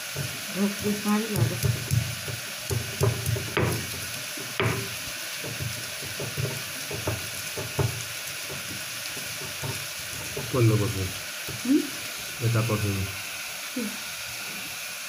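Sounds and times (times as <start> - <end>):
stone pestle grinding in mortar: 0.0 - 11.6.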